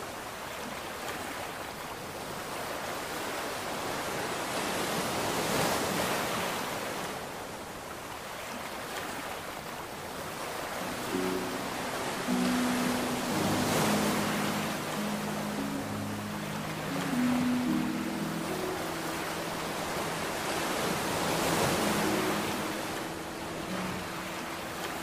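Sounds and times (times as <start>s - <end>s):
sea waves washing onto shore: 0.0s - 25.0s.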